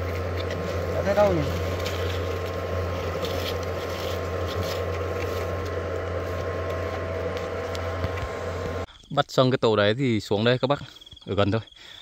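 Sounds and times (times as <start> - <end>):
hornets buzzing: 0.0 - 8.9.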